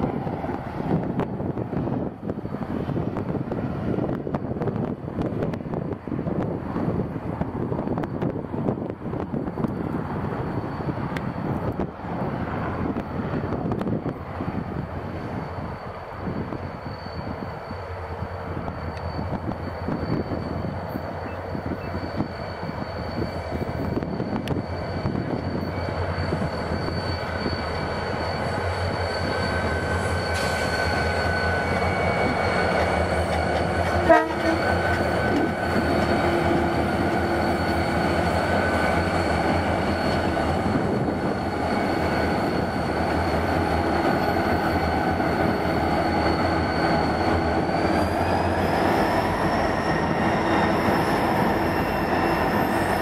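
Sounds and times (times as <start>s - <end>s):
diesel locomotive engine drone: 0.0s - 53.0s
high-pitched whine: 15.0s - 53.0s.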